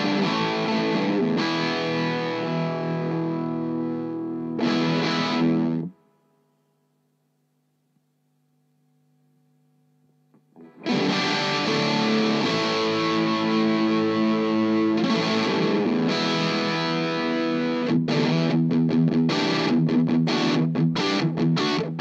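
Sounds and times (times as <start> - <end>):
distorted electric guitar: 0.0 - 6.0, 10.4 - 22.0.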